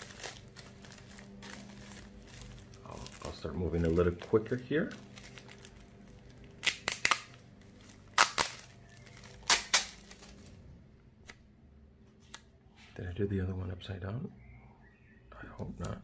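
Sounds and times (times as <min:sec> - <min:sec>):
plastic wrap crinkling: 0:00.0 - 0:10.7.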